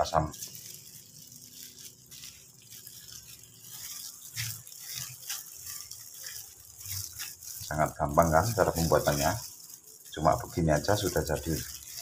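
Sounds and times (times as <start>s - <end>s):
gloved hand squishing dough: 0.0s - 12.0s.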